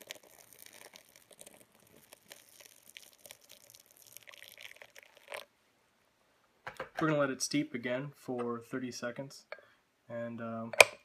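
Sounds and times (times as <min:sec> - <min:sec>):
water pouring and splashing: 0:00.0 - 0:05.5.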